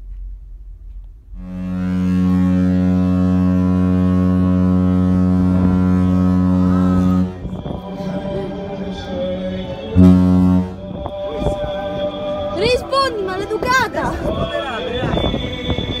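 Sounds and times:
ship's horn blast: 1.3s - 11.8s.

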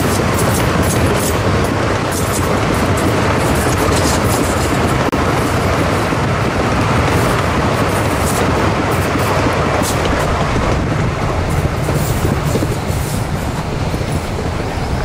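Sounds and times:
faint rail clicks: 0.0s - 5.1s
train wheels rumbling: 0.0s - 15.0s.

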